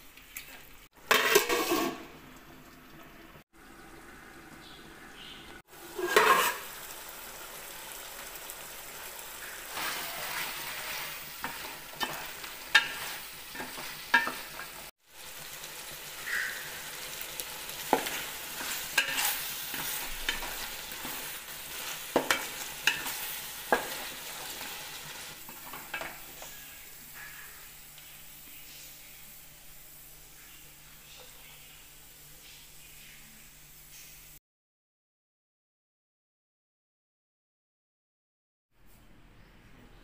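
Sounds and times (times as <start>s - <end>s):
chicken sizzling in pot: 0.0s - 34.4s
spatula scraping and knocking pot: 1.1s - 2.1s, 5.9s - 6.7s, 9.7s - 14.9s, 17.8s - 26.6s.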